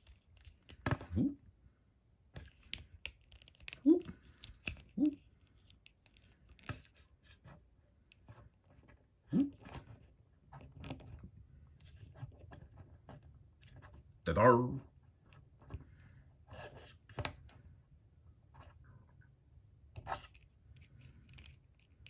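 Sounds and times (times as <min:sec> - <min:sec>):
brief voice sounds: 0:05.0 - 0:05.2, 0:14.3 - 0:14.8.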